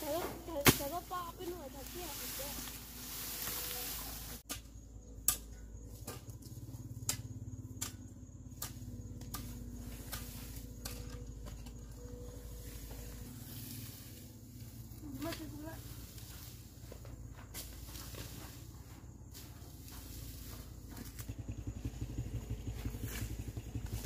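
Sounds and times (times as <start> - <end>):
dry grass rustling: 0.0 - 4.4
garden tool scraping dry ground: 0.0 - 6.8, 8.5 - 24.0.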